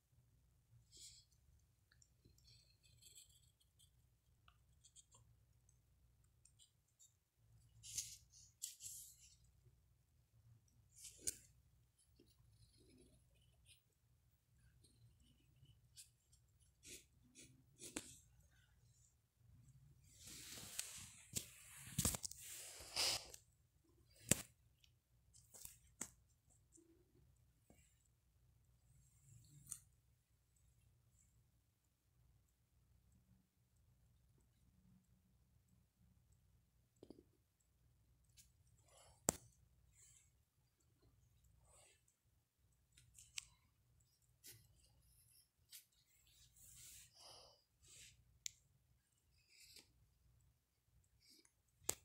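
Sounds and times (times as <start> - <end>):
pencil scratching on paper: 2.2 - 5.2, 10.9 - 18.3.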